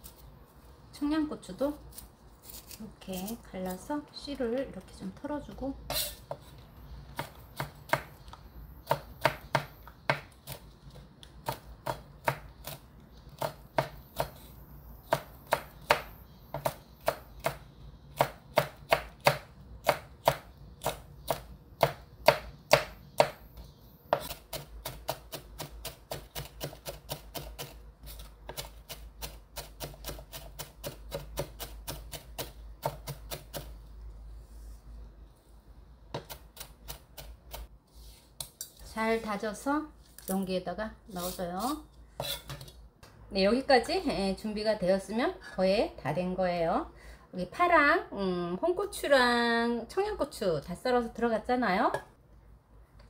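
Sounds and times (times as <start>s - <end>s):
knife chopping on wooden board: 8.9s - 10.3s, 18.2s - 23.4s.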